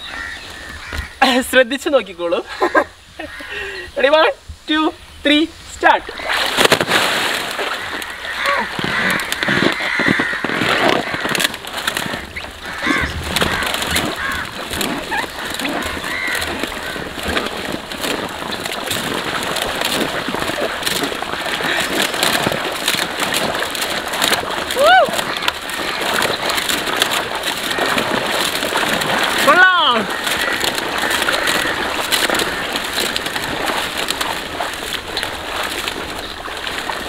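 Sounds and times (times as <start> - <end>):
water splashing and sloshing: 0.0 - 3.8, 5.8 - 37.0
rubber squeaks: 7.9 - 37.0.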